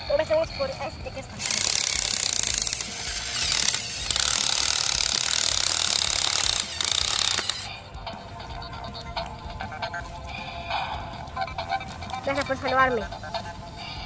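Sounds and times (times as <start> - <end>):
toy motor and gears whirring: 0.0 - 7.8.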